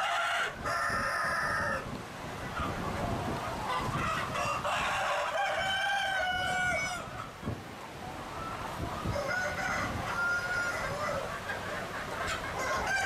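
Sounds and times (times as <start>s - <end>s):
rooster crowing: 0.0s - 1.8s, 4.2s - 7.2s, 9.0s - 11.3s, 12.6s - 13.0s
hens clucking: 0.0s - 13.0s.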